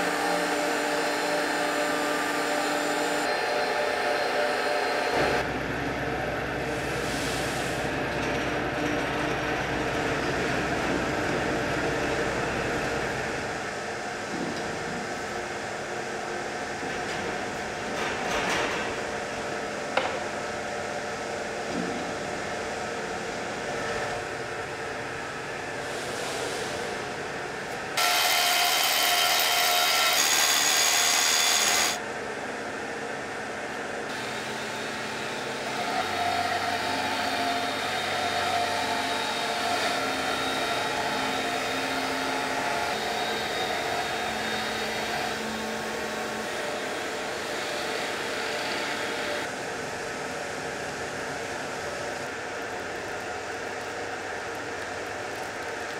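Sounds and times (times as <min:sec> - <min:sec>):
power polisher whine: 0:00.0 - 0:05.4, 0:28.0 - 0:32.0, 0:34.1 - 0:49.5
workshop machinery hum: 0:00.0 - 0:55.9.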